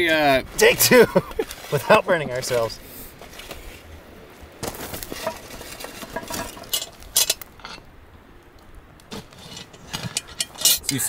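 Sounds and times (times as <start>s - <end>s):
charcoal clinking on metal: 5.1s - 7.8s, 9.2s - 11.0s.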